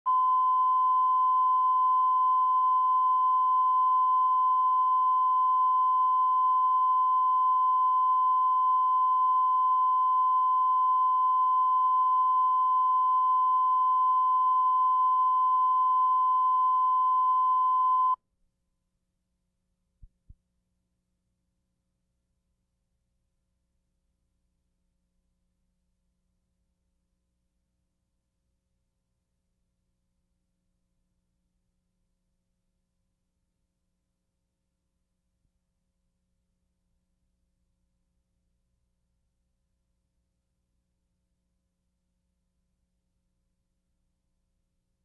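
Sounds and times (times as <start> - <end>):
steady test tone beep: 0.1 - 18.2.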